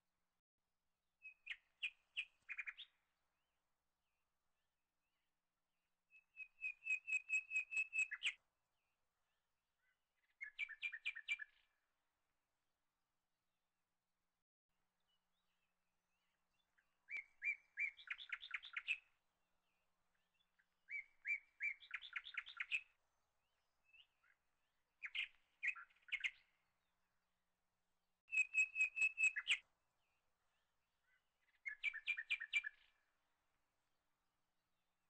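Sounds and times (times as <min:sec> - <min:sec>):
bird singing trilled notes: 0:28.3 - 0:29.6.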